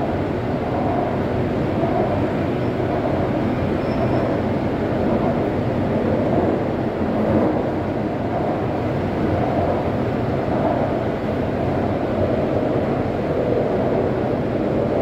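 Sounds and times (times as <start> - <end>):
train running rumble: 0.0 - 15.0.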